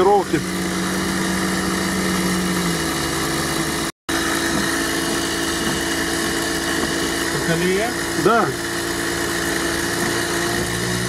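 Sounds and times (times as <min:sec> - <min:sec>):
air compressor humming: 0:00.0 - 0:11.0
car engine running at low speed: 0:00.0 - 0:11.0.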